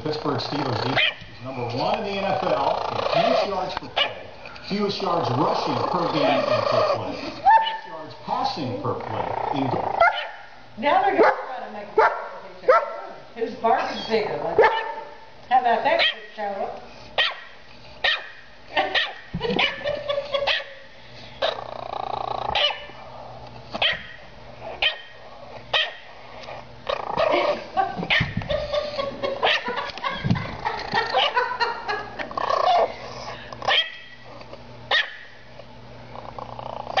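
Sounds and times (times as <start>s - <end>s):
dog barking aggressively: 0.9s - 1.3s, 3.9s - 4.3s, 10.0s - 10.5s, 11.2s - 13.1s, 14.6s - 15.2s, 16.0s - 16.2s, 17.2s - 20.8s, 22.5s - 23.0s, 23.8s - 24.2s, 24.8s - 26.1s, 27.2s - 28.7s, 29.3s - 29.9s, 31.0s - 31.5s, 33.7s - 34.2s, 34.9s - 35.4s.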